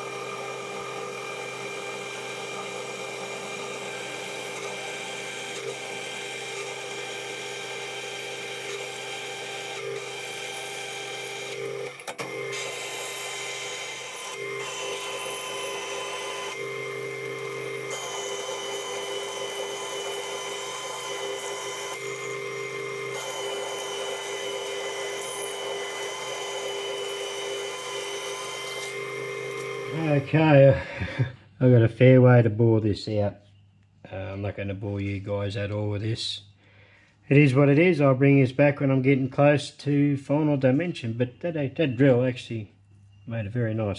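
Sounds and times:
lathe drilling into metal: 0:00.0 - 0:30.3.

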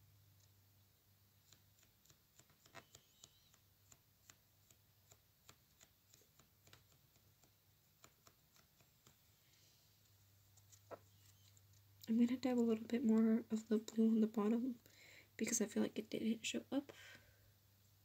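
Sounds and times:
low steady hum: 0:00.0 - 0:01.8, 0:07.3 - 0:18.0
sponge tapping on fingernail: 0:01.4 - 0:09.2.

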